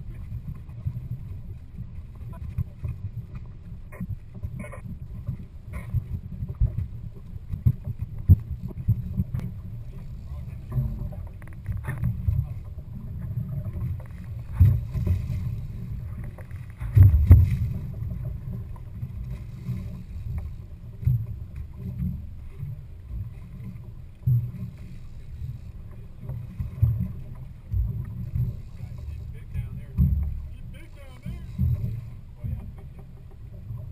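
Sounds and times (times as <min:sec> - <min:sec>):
wind and water rumble: 0:00.0 - 0:33.9
thumps on boat: 0:07.5 - 0:24.9, 0:25.7 - 0:33.9.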